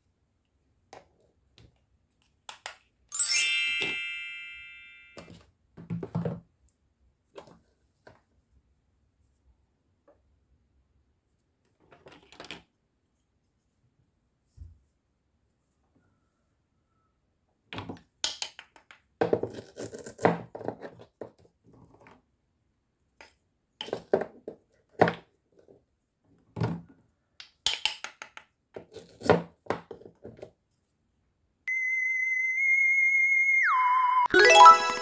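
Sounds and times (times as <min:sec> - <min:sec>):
high electronic tone: 0:31.7 - 0:35.0.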